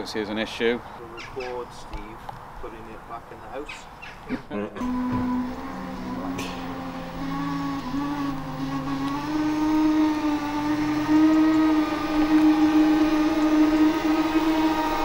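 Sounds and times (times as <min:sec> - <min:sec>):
electric motor whining: 0:04.8 - 0:15.0.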